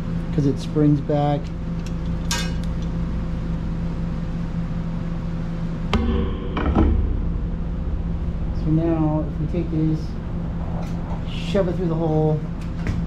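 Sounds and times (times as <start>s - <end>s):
low hum: 1.4s - 13.0s
metallic ring of tube bender: 5.9s - 8.6s
sharp metal knocks: 5.9s - 9.3s.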